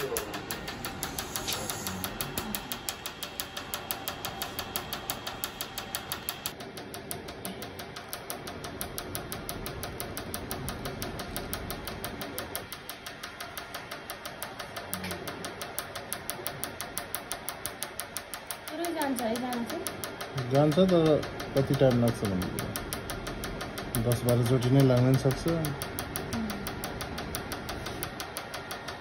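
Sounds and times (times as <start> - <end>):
laser pulses snapping: 0.0 - 28.7.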